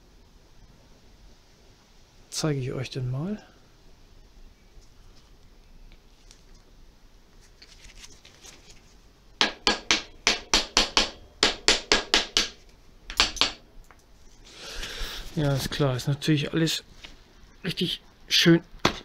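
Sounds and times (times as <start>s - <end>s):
hand tool tapping on screws: 9.4s - 13.6s.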